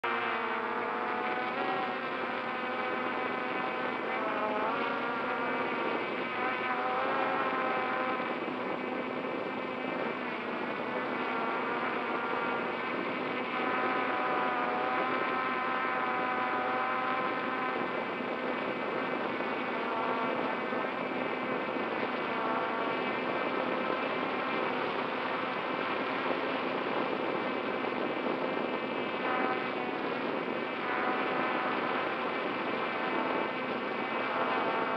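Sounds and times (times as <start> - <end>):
drone propellers buzzing: 0.0 - 34.9.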